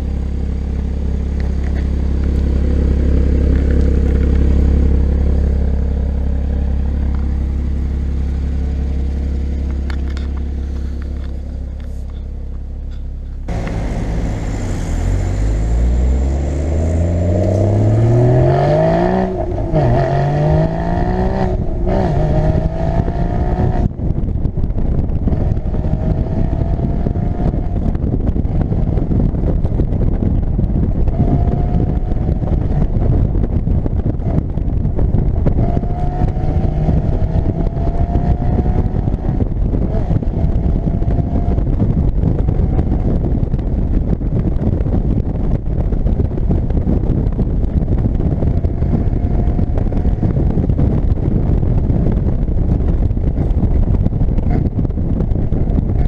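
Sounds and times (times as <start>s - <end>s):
car engine revving: 0.0s - 24.1s, 25.1s - 30.2s, 34.0s - 43.4s
heavy wind: 0.0s - 56.0s
road rumble: 0.0s - 56.0s.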